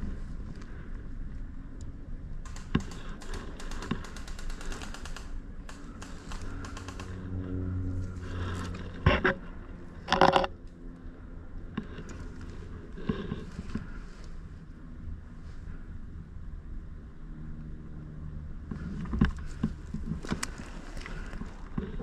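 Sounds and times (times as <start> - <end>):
small clicks and rustles: 1.8 - 7.4, 18.7 - 22.0
gear rattling: 2.5 - 7.3.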